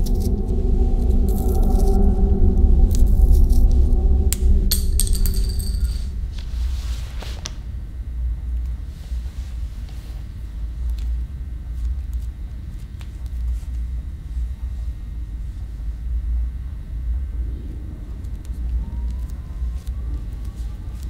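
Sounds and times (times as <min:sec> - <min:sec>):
low rumbling drone: 0:00.0 - 0:09.7, 0:13.9 - 0:20.4.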